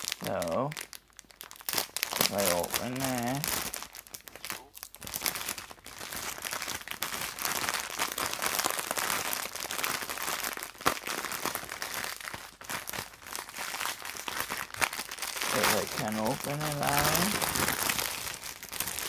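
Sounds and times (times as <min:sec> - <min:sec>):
snack packaging crinkling: 0:00.0 - 0:19.0.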